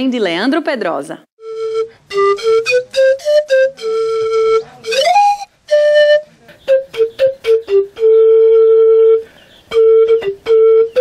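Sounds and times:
breathy pan flute melody: 0:01.4 - 0:11.0.

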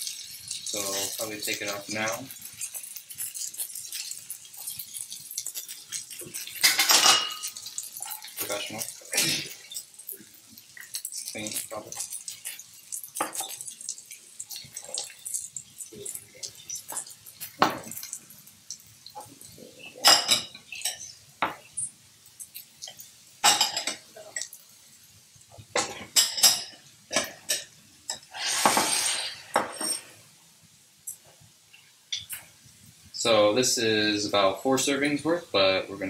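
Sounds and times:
ceramic bowls clinking: 0:00.1 - 0:09.8, 0:19.2 - 0:21.7, 0:22.8 - 0:24.5
wooden spoon scraping skillet: 0:28.3 - 0:30.2.

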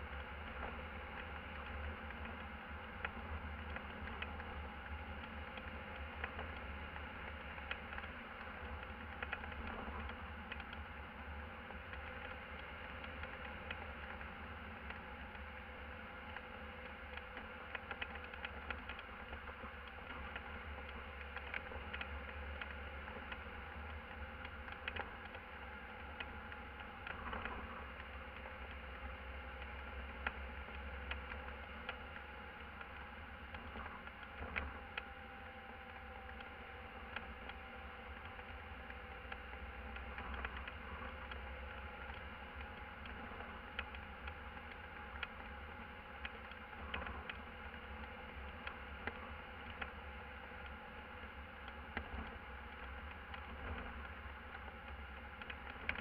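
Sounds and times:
small rattles and clicks: 0:00.0 - 0:56.0
van engine and road drone: 0:00.0 - 0:56.0.

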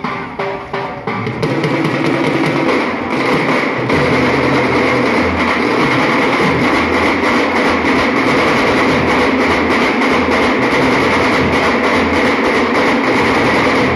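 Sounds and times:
dhol drums beating: 0:00.0 - 0:13.9.

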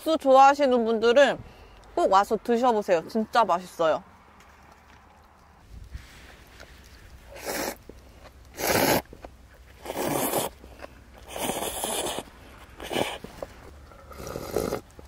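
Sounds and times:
person slurping noodles: 0:07.3 - 0:07.8, 0:08.5 - 0:09.1, 0:09.8 - 0:13.3, 0:14.1 - 0:14.8.

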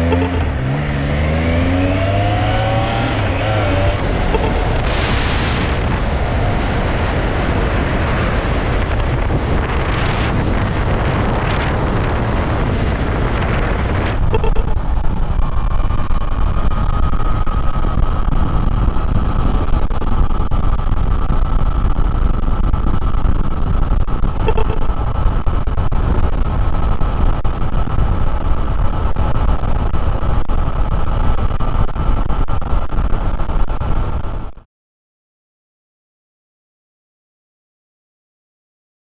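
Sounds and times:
click: 0:00.1 - 0:00.5
wind noise inside helmet: 0:01.5 - 0:34.7.

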